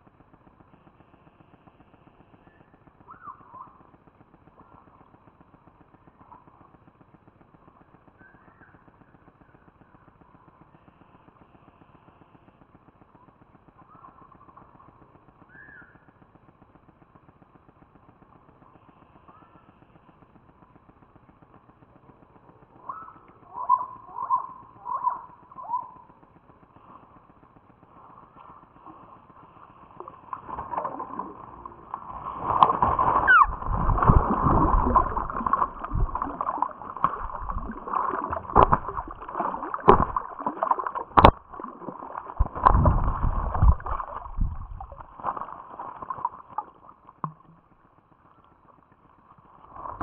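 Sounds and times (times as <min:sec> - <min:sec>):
faint steady hiss: 0:00.0 - 0:50.0
bird calling: 0:02.5 - 0:03.8, 0:15.5 - 0:16.1, 0:22.8 - 0:26.1, 0:32.7 - 0:41.1.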